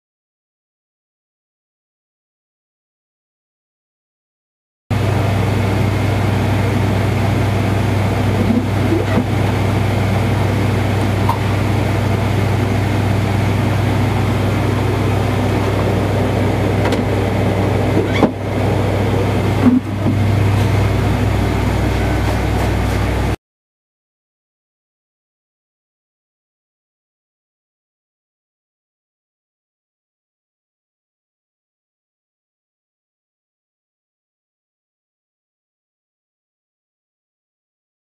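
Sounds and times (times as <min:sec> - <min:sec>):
loud hum and hiss: 0:05.0 - 0:23.4.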